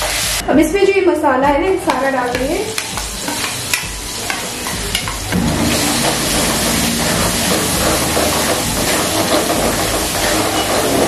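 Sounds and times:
paste sizzling in hot fat: 2.6 - 11.0.

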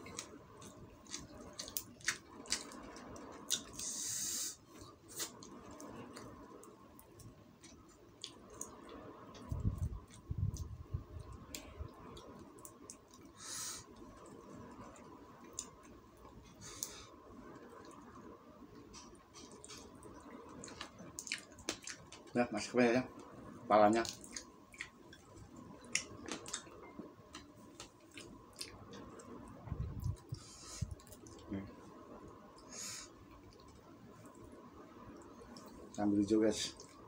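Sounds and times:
wet chewing: 0.0 - 4.0, 18.9 - 22.4, 24.0 - 26.7, 27.3 - 29.3
short hissing sounds: 3.8 - 5.3.

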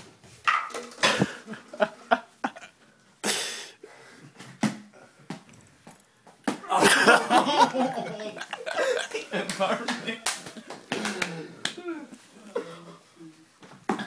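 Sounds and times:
balls knocking and thudding: 4.4 - 7.1.

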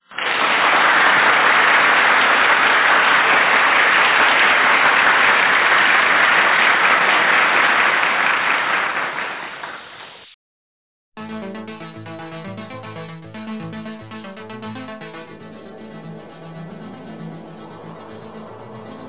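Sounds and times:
crowd applause: 0.1 - 9.3.

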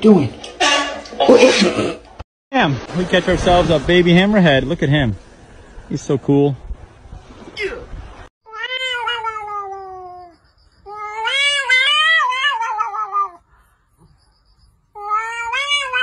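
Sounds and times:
cat yowling: 8.5 - 13.4, 15.0 - 16.0.

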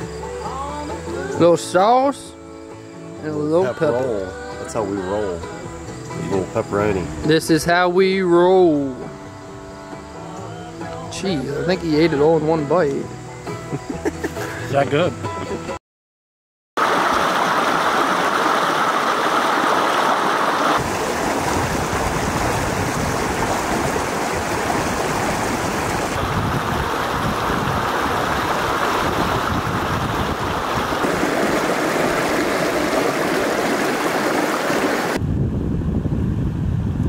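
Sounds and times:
river rushing over boulders: 16.8 - 35.2
wind rumble on microphone: 20.8 - 37.0.

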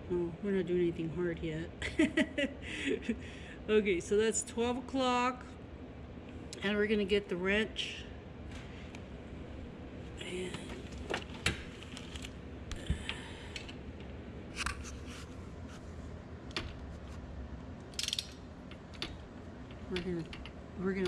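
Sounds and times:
metal tools clicking and clinking: 18.0 - 18.4.

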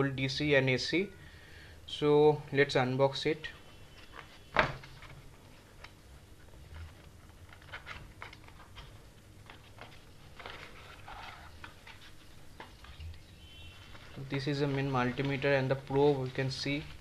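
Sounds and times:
cardboard flap rustling: 6.4 - 17.0.

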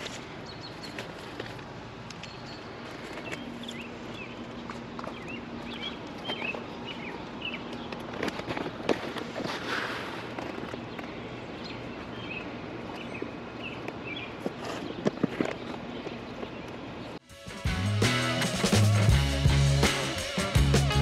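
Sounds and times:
small birds chirping: 0.0 - 8.8, 9.7 - 17.2.

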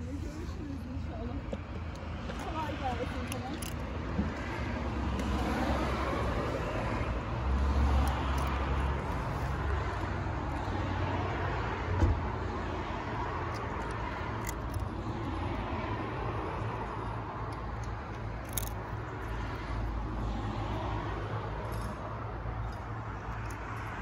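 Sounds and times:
street traffic: 0.0 - 24.0.

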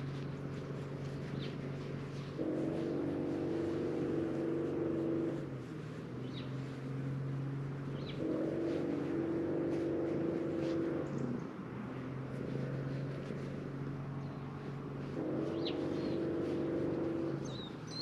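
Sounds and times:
low drone: 0.0 - 18.0
bird chirps: 15.5 - 16.4, 17.4 - 18.0.

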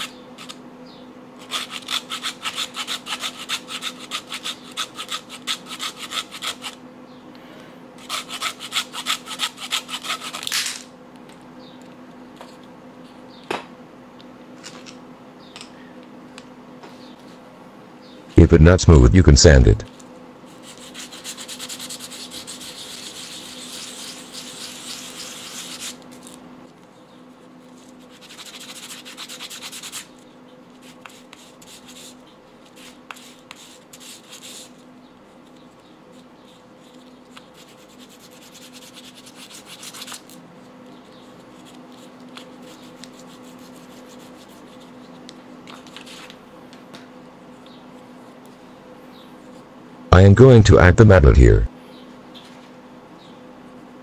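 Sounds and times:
faint steady hum: 10.6 - 54.0
plastic rubbed on sandpaper: 20.5 - 26.4, 27.8 - 30.1, 36.1 - 40.3, 41.3 - 45.2.

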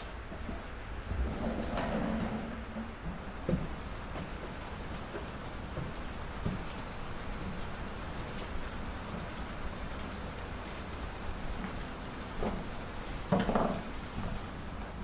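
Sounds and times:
steady rain: 0.0 - 15.0.

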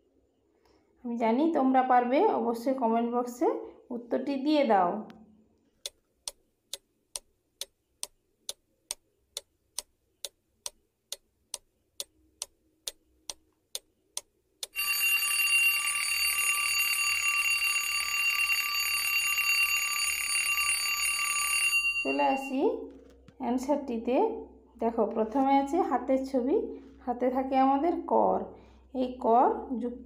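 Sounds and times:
clock ticking: 5.8 - 14.9
alarm clock bell ringing: 14.8 - 22.6.

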